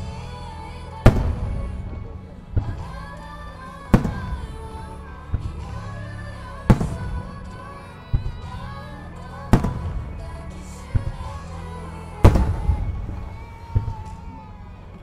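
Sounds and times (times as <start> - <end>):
music: 0.0 - 15.0.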